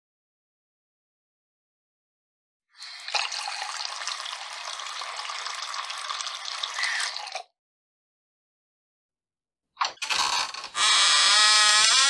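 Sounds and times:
water running from a tap: 0:02.8 - 0:07.4.

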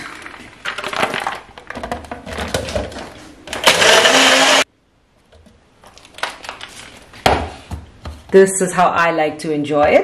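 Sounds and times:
electric blender running: 0:03.6 - 0:04.6.

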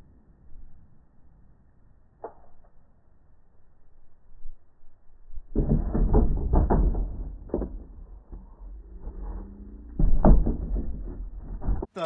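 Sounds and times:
wooden panels toppling and knocking: 0:05.5 - 0:08.5, 0:10.0 - 0:11.9.

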